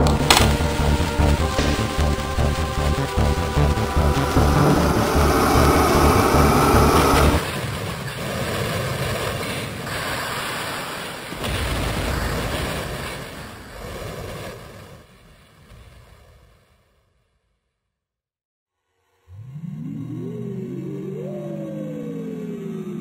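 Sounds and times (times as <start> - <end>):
loud heavy-bottomed music: 0.0 - 7.4
rumbling explosion-like noise: 0.0 - 7.9.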